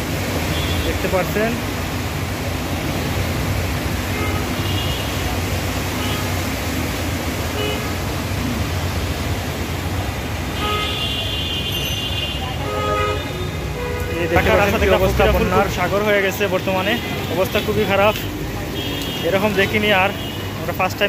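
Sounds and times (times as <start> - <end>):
heavy rain and water: 0.0 - 21.0
rumble of passing vehicles: 0.0 - 21.0
car horns tooting: 4.1 - 6.4, 10.5 - 15.7.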